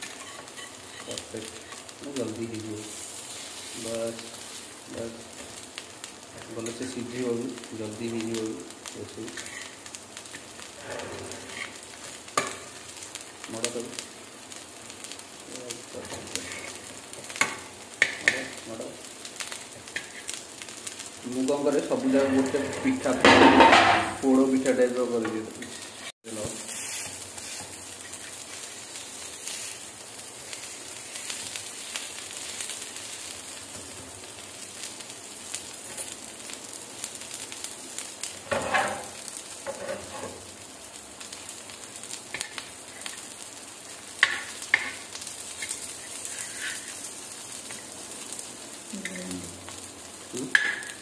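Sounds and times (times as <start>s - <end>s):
fritters sizzling in oil: 0.0s - 51.0s
spatula scraping and knocking on pan: 12.4s - 12.7s, 22.0s - 24.2s, 38.4s - 40.4s, 44.2s - 45.0s.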